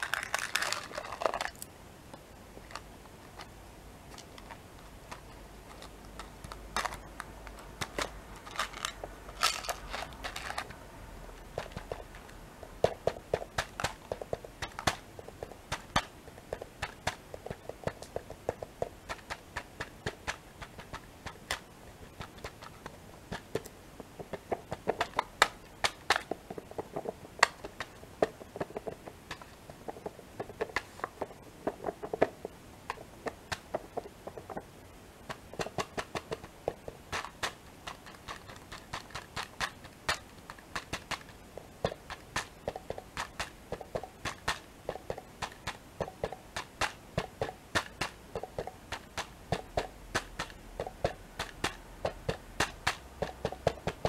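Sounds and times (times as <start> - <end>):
fingertips tapping plastic lid: 11.4 - 54.0.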